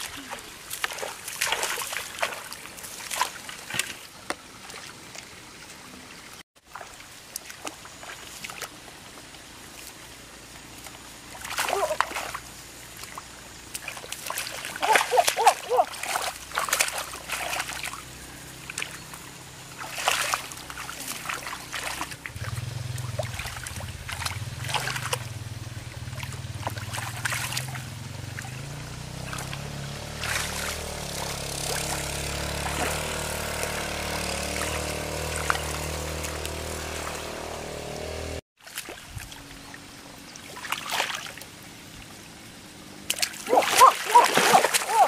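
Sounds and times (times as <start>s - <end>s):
hands splashing in muddy water: 0.0s - 5.0s, 10.8s - 19.0s, 19.7s - 37.3s, 40.4s - 41.5s, 43.0s - 45.0s
low steady engine hum: 0.0s - 38.4s.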